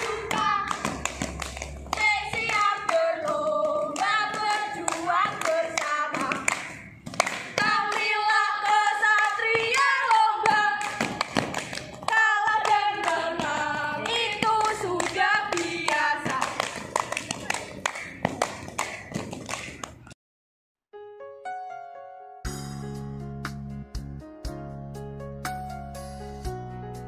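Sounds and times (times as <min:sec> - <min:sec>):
girls singing together: 0:00.0 - 0:17.0
hand claps: 0:00.0 - 0:20.2.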